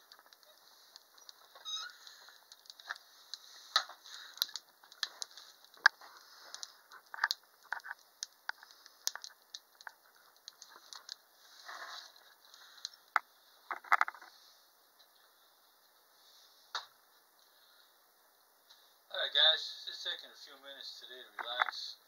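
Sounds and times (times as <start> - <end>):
wood fire crackling: 0.0 - 22.0
short squeak: 1.6 - 2.0.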